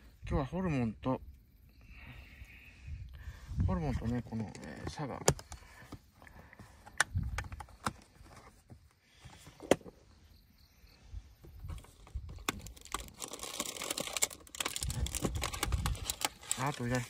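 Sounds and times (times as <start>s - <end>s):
clicks and knocks of gear handling: 4.1s - 6.0s.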